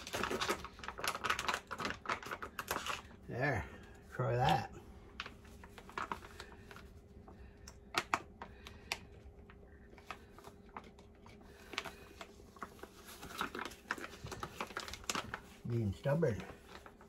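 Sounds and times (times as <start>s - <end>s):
plastic bag crinkling: 0.0s - 17.0s.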